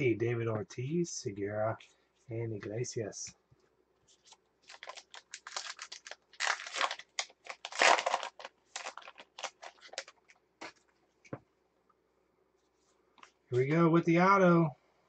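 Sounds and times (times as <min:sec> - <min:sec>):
wrapper tearing and crinkling: 0:04.6 - 0:10.4.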